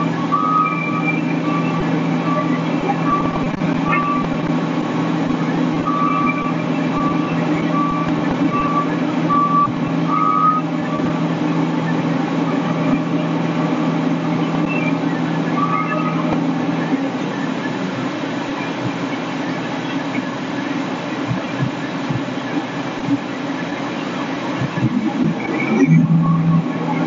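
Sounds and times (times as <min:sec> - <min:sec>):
warning beeps: 0:00.0 - 0:17.9, 0:24.0 - 0:27.0
fire truck engine running: 0:00.0 - 0:27.0.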